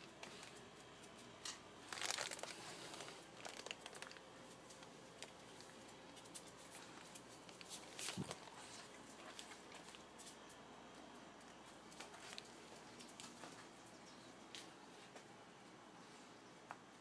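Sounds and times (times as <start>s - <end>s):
puppy rustling on carpet: 4.4s - 10.6s.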